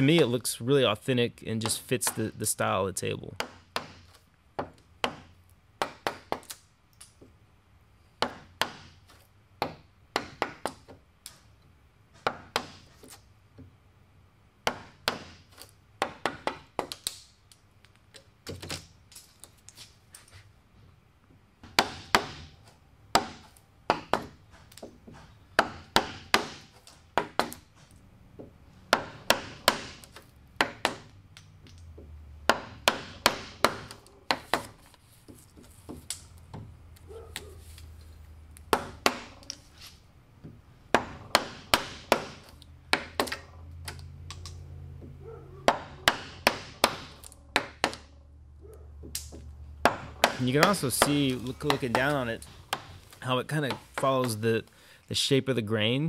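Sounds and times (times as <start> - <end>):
chisel tapping and splitting wood: 1.6 - 2.4, 3.4 - 7.3, 8.2 - 11.5, 12.1 - 13.8, 14.6 - 18.9, 21.3 - 27.7, 28.4 - 37.5, 38.6 - 39.6, 40.4 - 48.1, 49.0 - 54.4.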